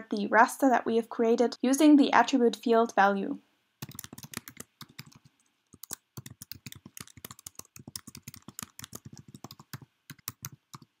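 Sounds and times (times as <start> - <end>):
computer keyboard typing: 3.8 - 11.0.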